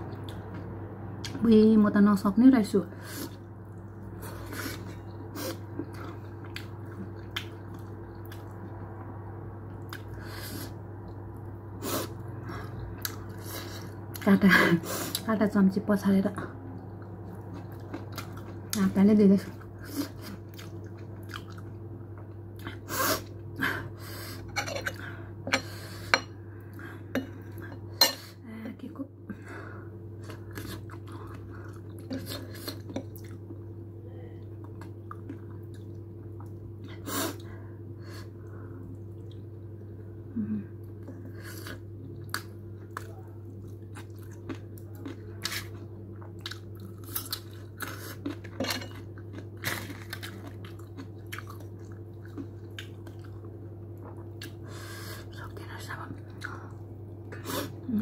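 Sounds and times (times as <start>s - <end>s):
steady low hum: 0.0s - 58.0s
person chewing: 3.2s - 8.8s, 9.7s - 11.2s, 11.9s - 14.3s, 16.8s - 18.8s, 19.6s - 23.4s, 30.1s - 33.7s, 34.6s - 37.5s, 40.8s - 54.8s.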